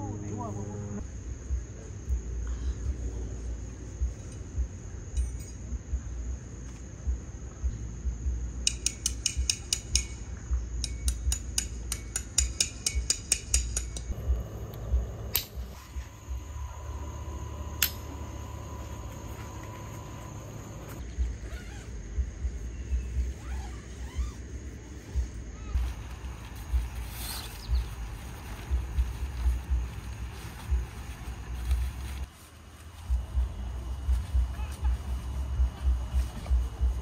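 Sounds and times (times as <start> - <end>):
low steady rumble: 0.0 - 8.7, 13.9 - 37.0
cricket trill: 0.0 - 37.0.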